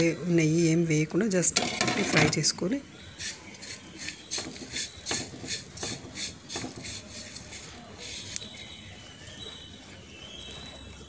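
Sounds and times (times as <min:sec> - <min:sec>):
seeds stirred in dry pan: 0:01.6 - 0:09.7.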